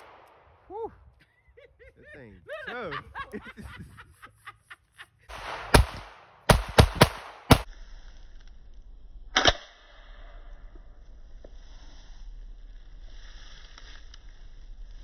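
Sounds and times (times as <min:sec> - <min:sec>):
gunshots: 0:00.0 - 0:00.6, 0:05.3 - 0:07.7.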